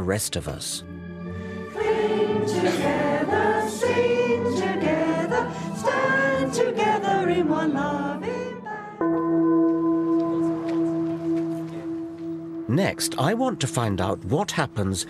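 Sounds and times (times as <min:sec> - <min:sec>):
congregation singing: 0:01.5 - 0:13.3
low held note: 0:09.0 - 0:14.2.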